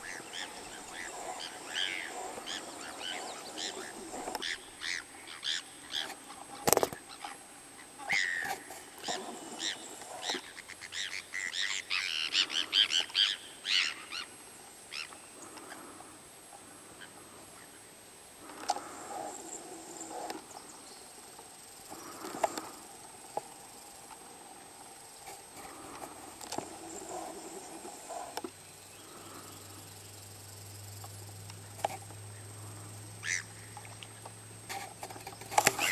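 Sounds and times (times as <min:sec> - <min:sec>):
high animal calls: 0:00.0 - 0:06.2, 0:08.0 - 0:14.3.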